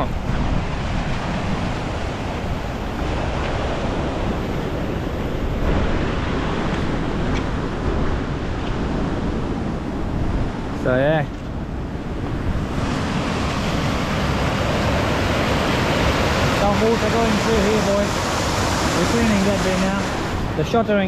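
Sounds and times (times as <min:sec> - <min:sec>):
wind buffeting microphone: 0:00.0 - 0:21.0
water rushing through a gap: 0:12.6 - 0:20.7.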